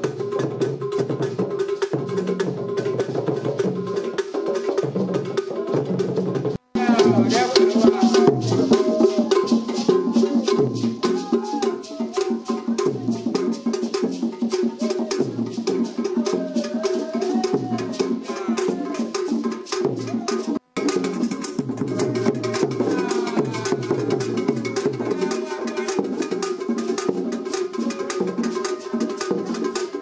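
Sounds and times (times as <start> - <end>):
fast wooden percussion: 0.0 - 30.0
low drum beat: 4.8 - 27.3
person singing: 6.7 - 20.6, 21.7 - 30.0.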